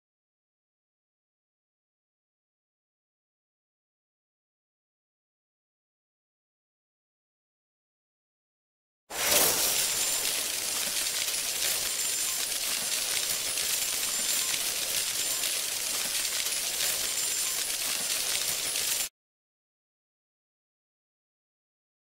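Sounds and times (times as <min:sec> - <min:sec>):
shimmering tinkling clinks: 0:09.2 - 0:19.1.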